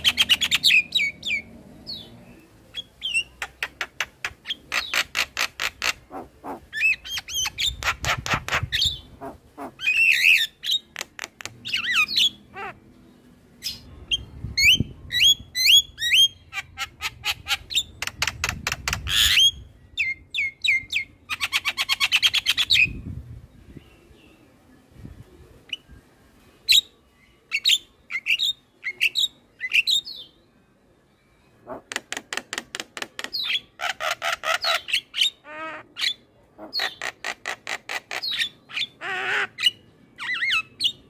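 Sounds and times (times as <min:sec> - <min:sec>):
bird harsh chattering: 0:02.8 - 0:12.8.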